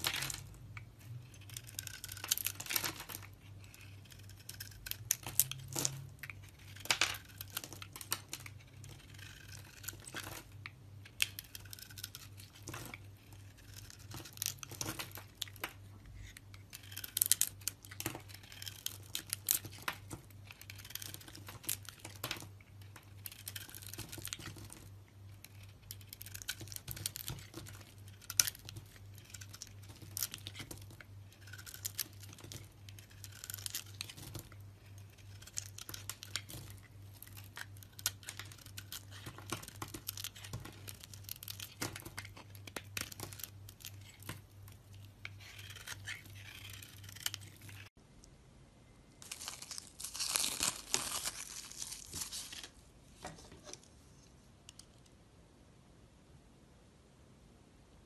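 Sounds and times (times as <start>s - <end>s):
knife scraping soap: 1.0s - 22.3s, 22.9s - 48.0s.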